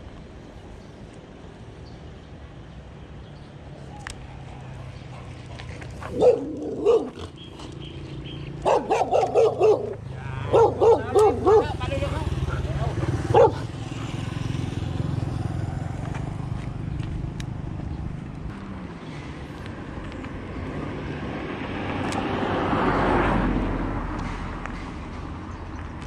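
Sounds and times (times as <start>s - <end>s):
vehicle passing: 3.6s - 25.8s
small motorcycle engine passing: 5.2s - 19.0s.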